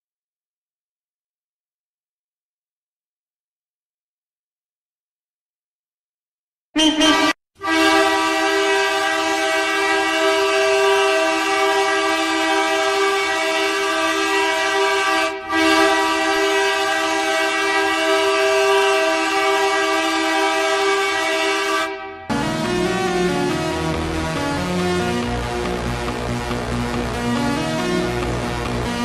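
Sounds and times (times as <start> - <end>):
hockey goal horn blasts: 6.8 - 23.6.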